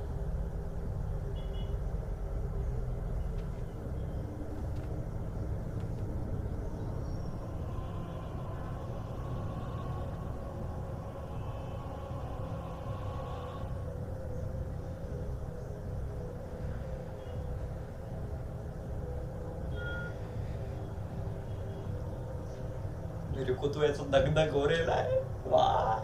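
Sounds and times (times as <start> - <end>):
low rumbling ambient drone: 0.0 - 26.0
faint held tones: 19.4 - 20.9.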